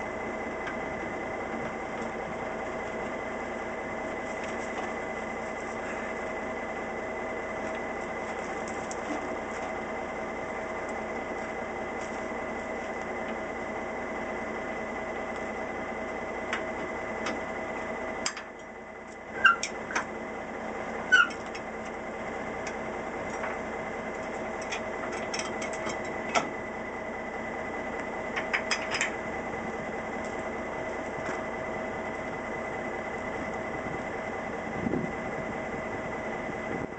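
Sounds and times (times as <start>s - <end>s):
diesel truck engine idling: 0.0s - 36.9s
short high squeaks: 19.3s - 19.7s, 21.1s - 21.5s.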